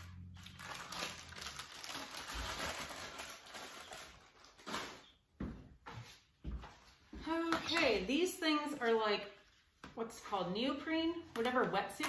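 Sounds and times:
plastic bag crinkling: 0.0s - 5.2s.

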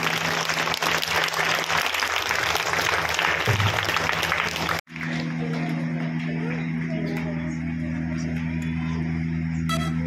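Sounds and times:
audience applauding: 0.0s - 6.4s
low steady hum: 3.7s - 10.0s.

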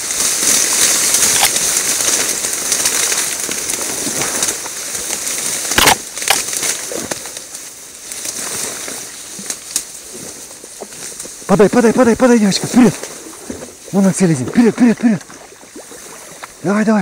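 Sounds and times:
rustling through wet marsh: 0.0s - 17.0s
sharp crack: 0.9s - 3.7s, 5.6s - 6.8s.

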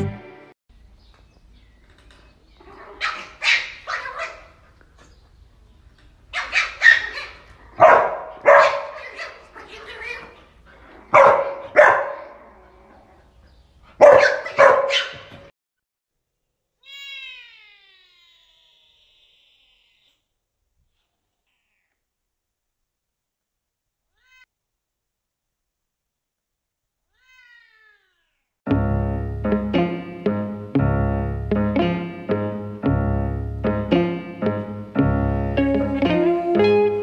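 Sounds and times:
dog barking: 2.7s - 4.6s, 6.3s - 10.4s, 11.0s - 12.7s, 13.9s - 15.4s.

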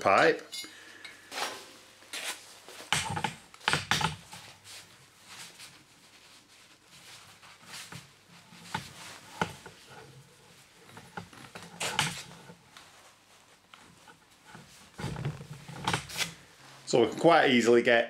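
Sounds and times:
cable rubbing scrapes: 6.8s - 12.6s, 13.8s - 17.3s.

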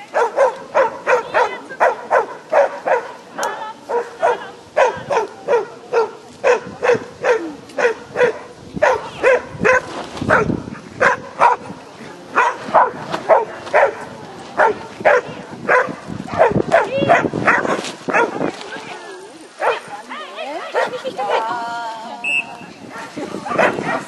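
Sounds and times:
dog barking: 0.1s - 11.7s, 12.4s - 18.4s, 19.6s - 19.9s, 20.7s - 21.4s, 22.9s - 24.0s.

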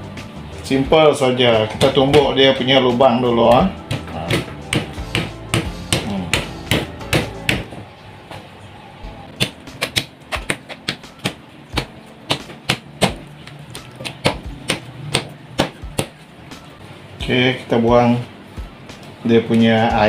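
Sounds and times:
meat tenderizer tapping: 3.9s - 7.7s, 9.4s - 16.2s.

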